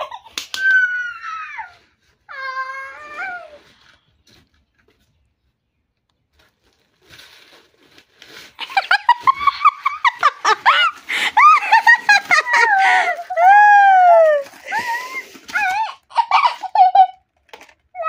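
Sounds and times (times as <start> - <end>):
girl squealing and laughing: 0.0 - 3.6, 8.6 - 17.2
cardboard and plastic being torn: 6.3 - 18.0.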